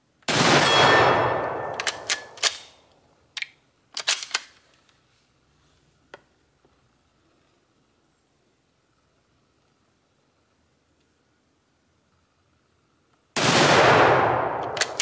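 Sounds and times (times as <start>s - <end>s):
rifle shot: 0.3s - 2.8s, 13.4s - 15.0s
rifle bolt metallic clicks: 1.5s - 4.6s, 14.4s - 15.0s.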